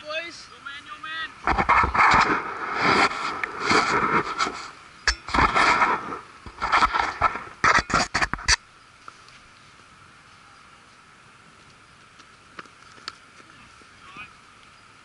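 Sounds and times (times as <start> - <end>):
wind buffeting microphone: 1.4 - 8.3
crackly scrapes: 1.4 - 8.6.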